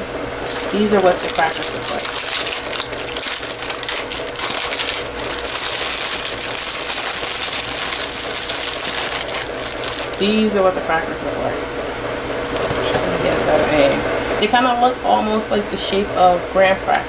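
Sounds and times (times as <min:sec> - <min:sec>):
plastic wrapper crinkling: 0:00.4 - 0:10.5.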